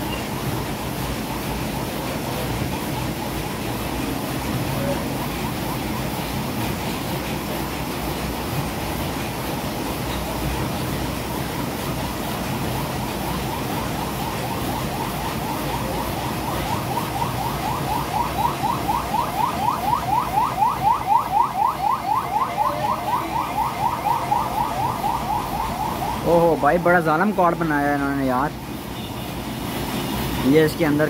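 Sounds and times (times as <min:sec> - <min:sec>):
steady background noise: 0:00.0 - 0:31.0
electronic alarm chirping: 0:14.5 - 0:27.3.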